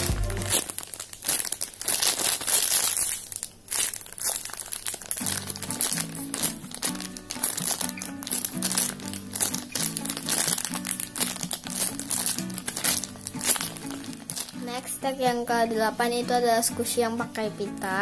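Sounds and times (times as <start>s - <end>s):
background music: 0.0s - 0.7s, 5.2s - 18.0s
plastic bag crinkling: 0.0s - 16.6s.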